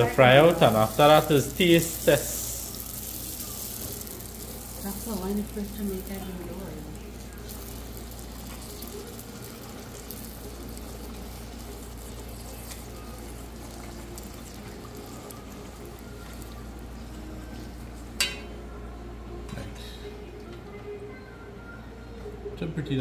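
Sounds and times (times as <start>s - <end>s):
dough sizzling in hot oil: 0.0s - 18.5s
spoon clinking against pot: 18.2s - 18.6s.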